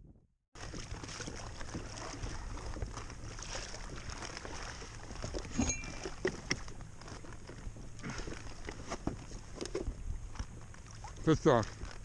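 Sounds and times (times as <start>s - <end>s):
water slapping plastic hull: 0.6s - 12.0s
wind on microphone: 0.8s - 12.0s.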